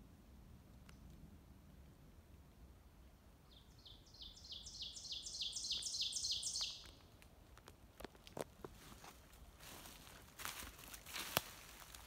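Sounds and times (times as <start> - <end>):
songbird singing: 3.0 - 7.1.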